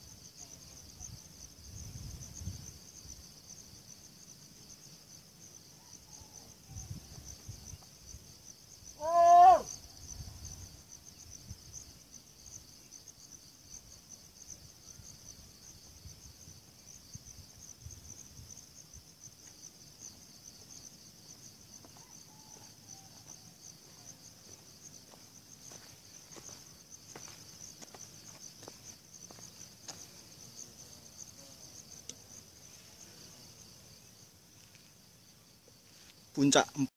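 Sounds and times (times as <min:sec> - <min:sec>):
high-pitched insect chorus: 0:00.0 - 0:36.9
loud wavering call: 0:09.0 - 0:09.7.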